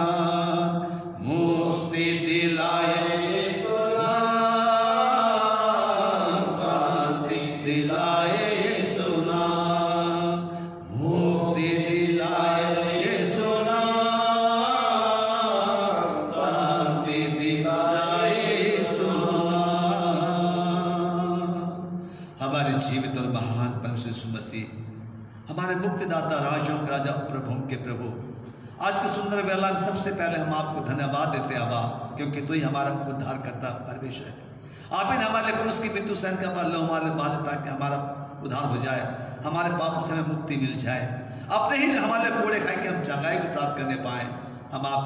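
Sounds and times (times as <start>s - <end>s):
man singing a hymn: 0.0s - 21.8s.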